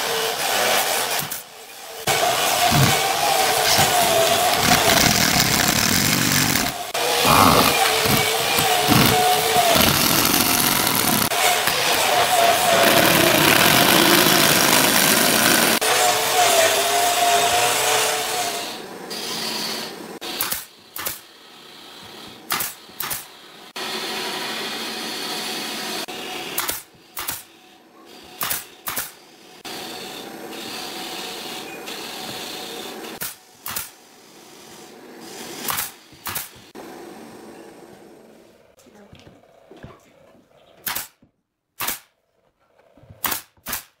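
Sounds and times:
pneumatic nailer firing nails: 2.3 - 15.8, 20.2 - 21.3, 22.4 - 23.3, 26.5 - 27.5, 28.4 - 29.2, 33.2 - 34.0, 35.5 - 36.7, 40.8 - 41.2, 41.8 - 42.1, 43.2 - 44.0
cordless drill driving screw: 2.6 - 15.8.

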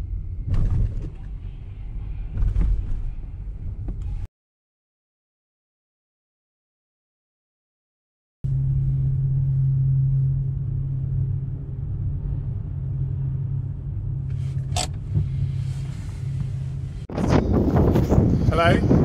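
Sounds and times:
low engine drone: 0.0 - 4.3, 8.4 - 19.0.

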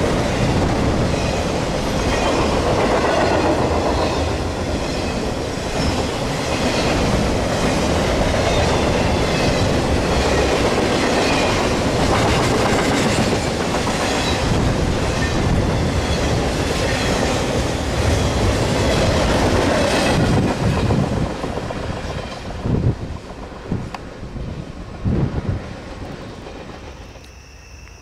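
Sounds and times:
clickety-clack over rail joints: 0.0 - 27.3
freight train wheels rumbling: 0.0 - 28.0.

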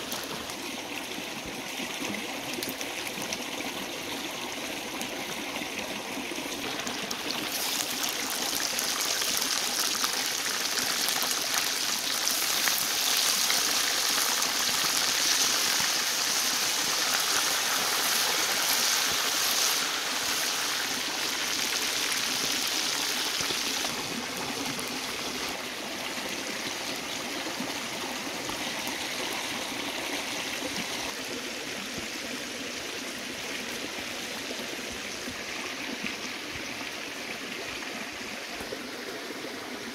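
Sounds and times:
deep-frying sizzle in oil: 7.4 - 24.0.

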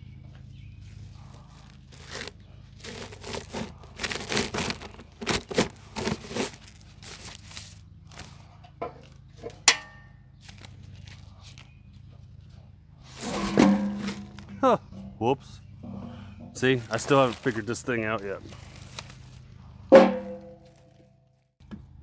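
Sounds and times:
plastic bag rustling and crinkling: 1.2 - 9.2, 10.4 - 11.8, 16.5 - 19.5.

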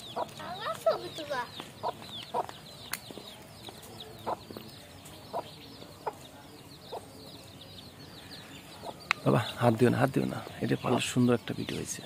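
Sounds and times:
hen clucking: 0.0 - 4.6, 5.3 - 6.3
chicks peeping: 0.0 - 12.0.

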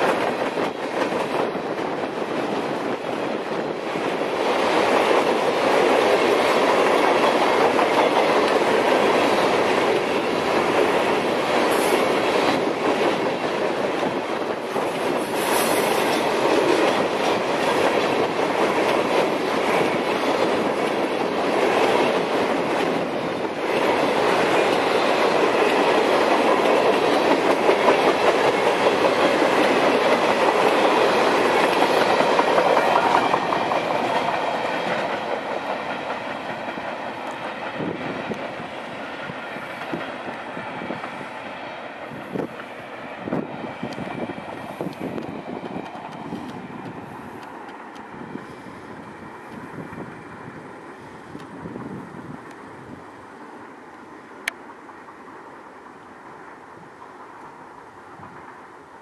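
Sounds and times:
freight train rumbling past: 0.0 - 59.0
train wheel squeals: 11.6 - 12.6, 15.1 - 16.4.

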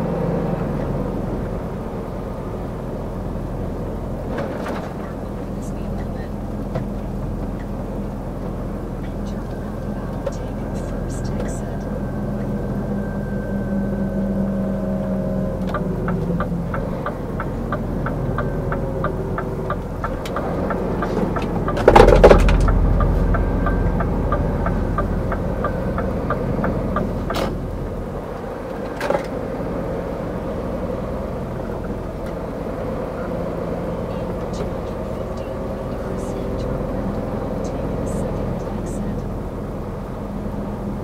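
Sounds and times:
truck diesel engine: 0.0 - 41.0
turn signal clicking: 15.0 - 28.9.

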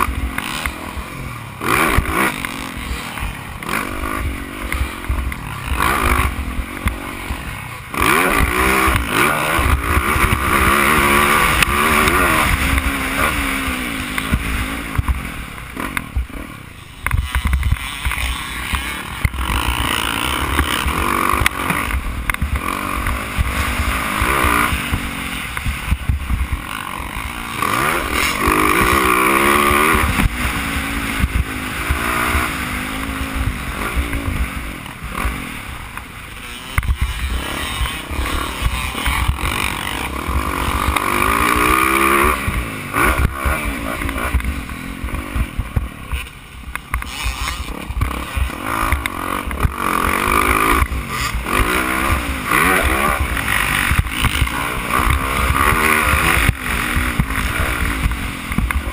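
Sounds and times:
motocross bike engine revving: 0.0 - 58.9.

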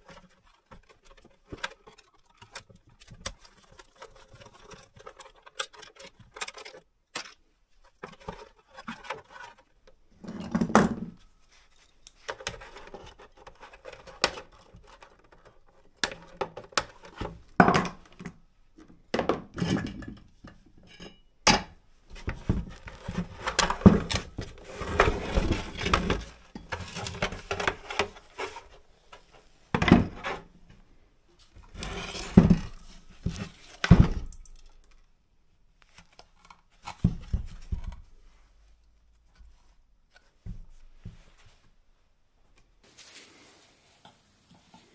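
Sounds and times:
clicks and rattles of parts: 0.0 - 10.9.

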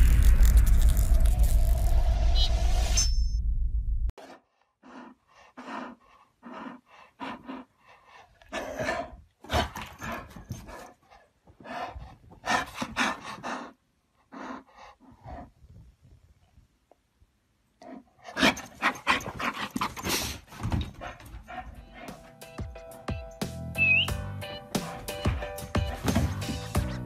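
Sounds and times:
dog panting and huffing: 4.2 - 15.6, 17.8 - 23.4, 24.4 - 27.0.

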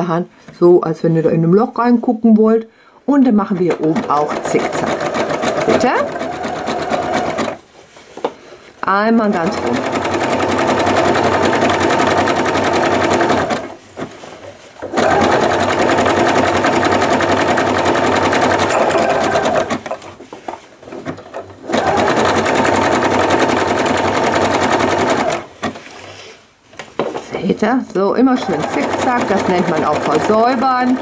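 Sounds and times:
electric sewing machine stitching: 3.5 - 7.6, 9.2 - 13.8, 14.8 - 20.0, 21.0 - 25.8, 28.3 - 31.0.

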